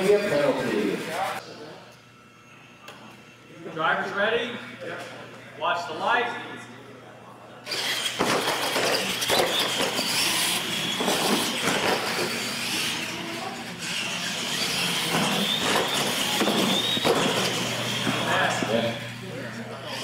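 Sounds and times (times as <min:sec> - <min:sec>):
electric motor and gear whine: 0:07.6 - 0:20.0.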